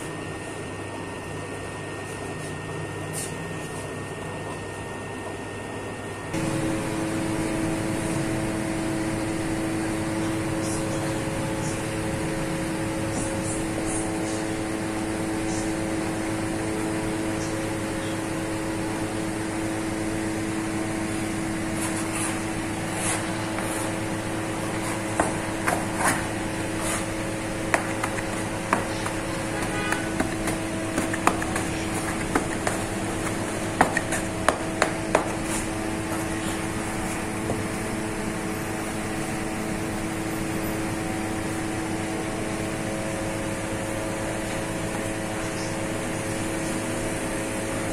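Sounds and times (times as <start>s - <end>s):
machine hum with tones: 0.0s - 47.9s
dough scraper tapping on bench: 27.6s - 35.4s.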